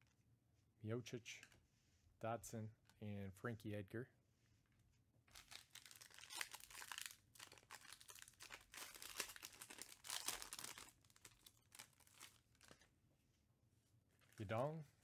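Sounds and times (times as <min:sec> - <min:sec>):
foil wrapper tearing and crinkling: 0:05.3 - 0:12.8.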